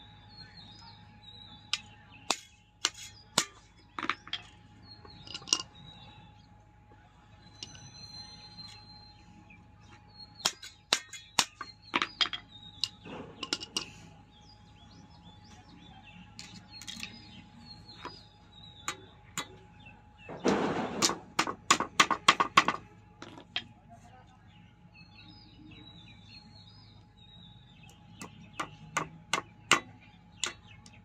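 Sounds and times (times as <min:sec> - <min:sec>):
birds chirping faintly: 0:00.0 - 0:31.0
tools clicking and tapping on concrete: 0:01.7 - 0:05.8, 0:10.4 - 0:14.1, 0:16.4 - 0:19.6, 0:21.0 - 0:23.7, 0:27.9 - 0:31.0.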